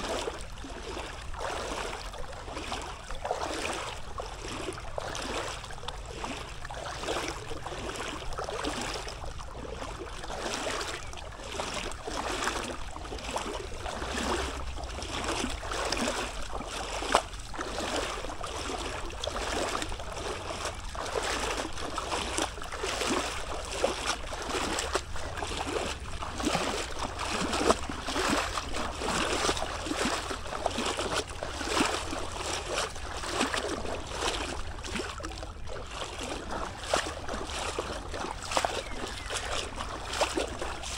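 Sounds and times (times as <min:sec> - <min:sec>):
river water rushing and splashing: 0:00.0 - 0:40.9.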